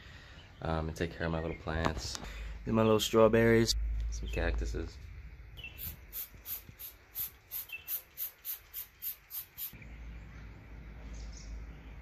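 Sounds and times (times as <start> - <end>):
low outdoor rumble: 0.1 - 6.1, 9.8 - 12.0
spray bottle squirts: 5.8 - 9.8.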